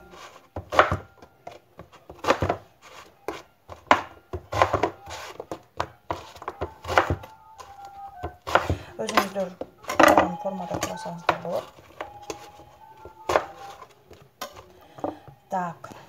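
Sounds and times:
knife slicing eggplant: 8.4s - 10.0s.

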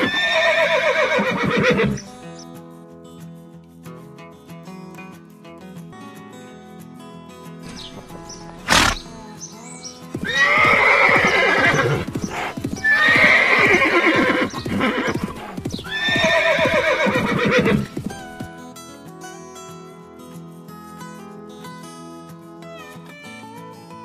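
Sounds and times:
horse neighing: 0.0s - 2.0s, 7.7s - 9.2s, 10.2s - 18.0s
background music: 0.1s - 24.0s.

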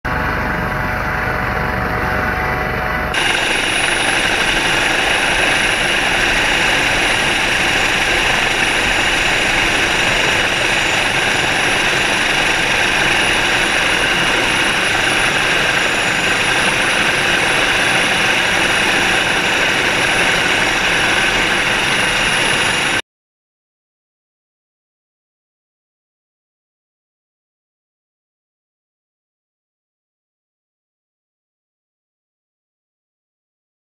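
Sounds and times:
helicopter rotor and turbine noise: 0.1s - 23.0s
high-pitched whine: 0.1s - 23.0s.

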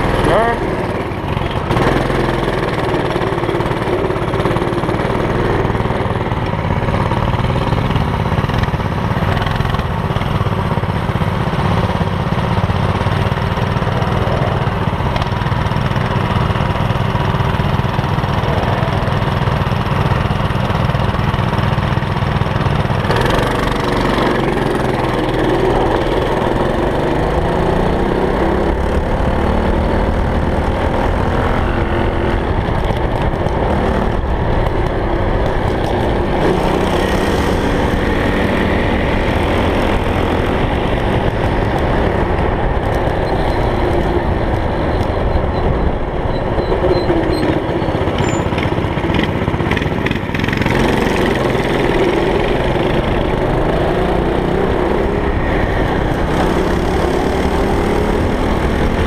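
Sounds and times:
go kart engine revving: 0.0s - 59.0s.

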